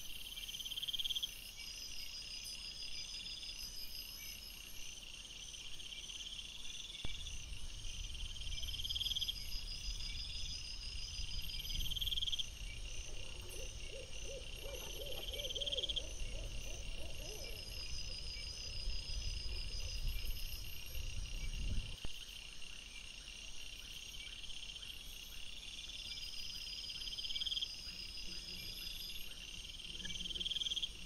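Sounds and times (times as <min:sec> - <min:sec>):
crickets chirping: 0:00.0 - 0:31.0
low wind rumble: 0:07.1 - 0:22.0
wavering animal call: 0:13.1 - 0:18.2.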